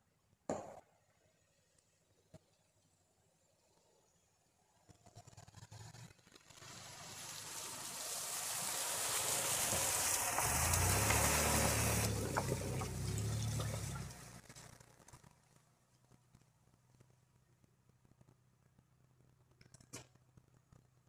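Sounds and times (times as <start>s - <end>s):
tyres crackling through leaves: 6.2s - 15.6s
car engine hum: 6.7s - 14.7s.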